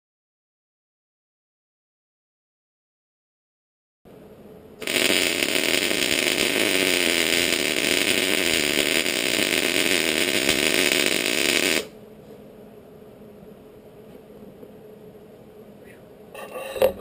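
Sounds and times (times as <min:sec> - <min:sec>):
welder arc crackling: 0:04.8 - 0:12.0.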